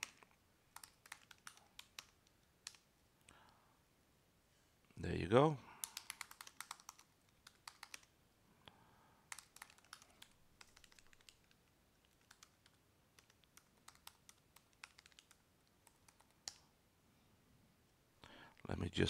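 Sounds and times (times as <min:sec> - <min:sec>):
computer keyboard typing: 0:00.0 - 0:02.8, 0:05.8 - 0:08.1, 0:09.3 - 0:16.6.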